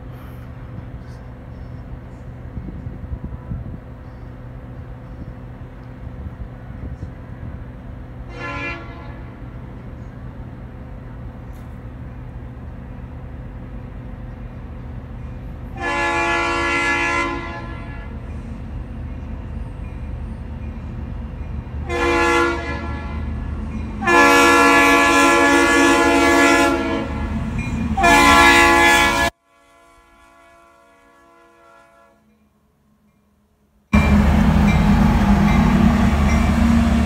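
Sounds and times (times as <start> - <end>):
locomotive air horn blasts: 8.3 - 9.4, 15.8 - 18.3, 21.8 - 23.4, 24.0 - 27.4, 28.0 - 32.2.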